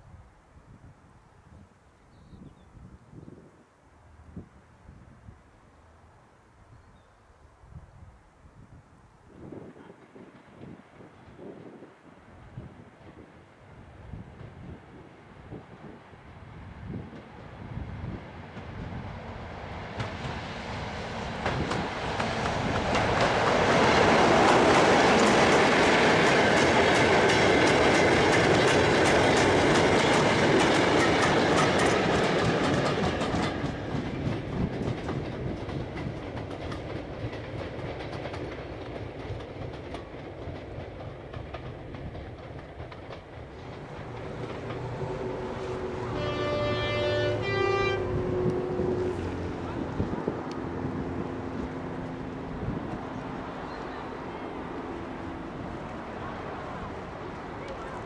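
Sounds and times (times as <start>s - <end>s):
diesel locomotive passing: 9.4s - 58.0s
wheels clicking over rail joints: 21.2s - 46.6s.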